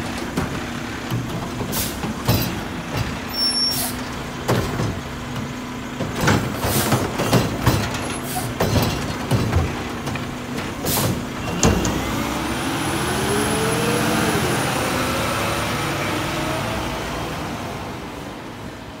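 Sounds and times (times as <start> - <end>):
truck clunk: 0.0 - 14.0
truck engine revving: 0.0 - 18.3.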